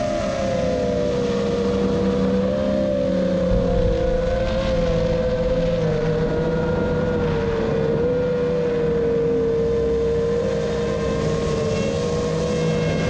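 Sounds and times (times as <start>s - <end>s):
drone motors buzzing whine: 0.0s - 13.0s
rushing air: 3.5s - 9.0s.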